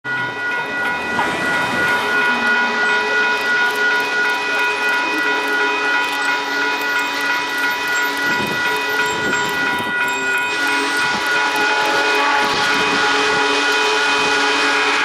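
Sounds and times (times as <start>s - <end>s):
steam locomotive whistle: 1.0s - 7.5s, 10.2s - 15.0s.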